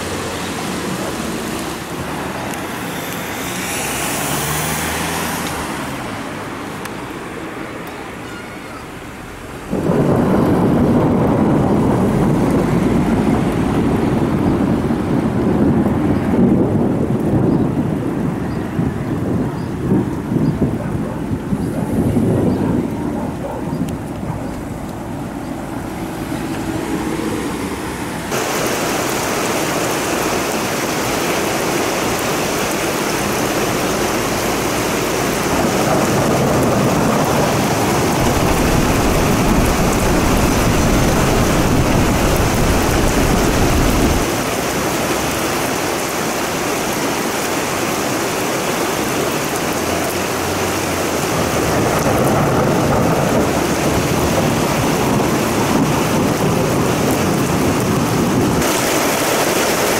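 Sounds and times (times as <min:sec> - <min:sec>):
heavy rain hissing: 0:00.0 - 0:59.9
thunder rumbling: 0:09.0 - 0:45.6, 0:48.9 - 0:59.9.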